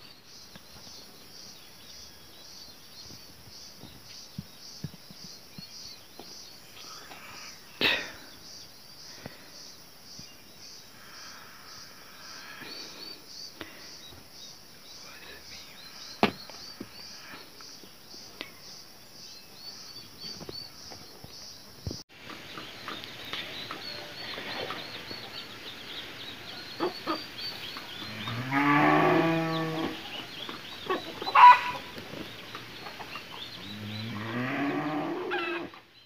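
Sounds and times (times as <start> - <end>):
cow mooing: 28.1 - 30.0, 33.7 - 35.7.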